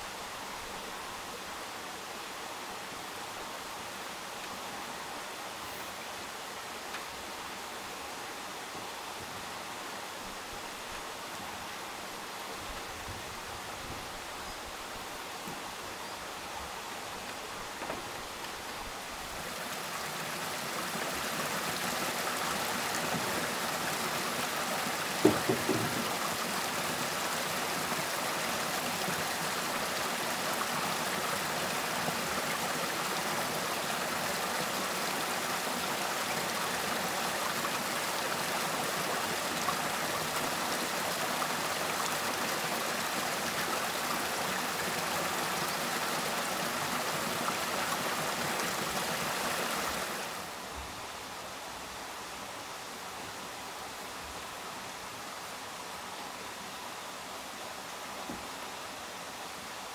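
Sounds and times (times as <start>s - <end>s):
running water rushing: 0.0s - 59.9s
knocks: 25.2s - 26.2s.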